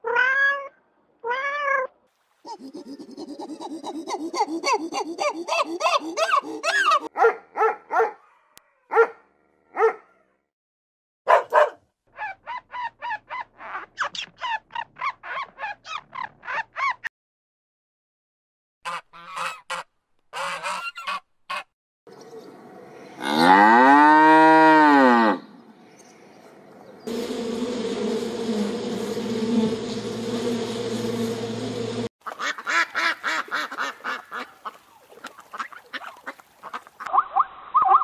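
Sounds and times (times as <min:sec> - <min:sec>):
animal call rising and falling: 0:02.5 - 0:07.1
duck quacks: 0:18.9 - 0:21.7, 0:32.2 - 0:34.8
bee buzzing: 0:27.0 - 0:32.1.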